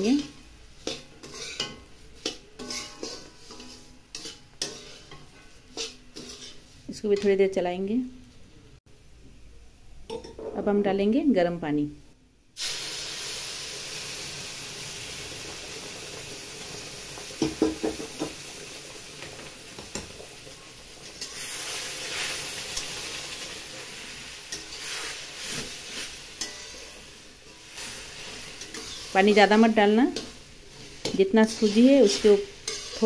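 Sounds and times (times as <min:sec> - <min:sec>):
water sizzling in hot pan: 0:00.0 - 0:07.0, 0:12.6 - 0:33.0
metal spatula scraping a pan: 0:00.0 - 0:07.3, 0:19.9 - 0:33.0.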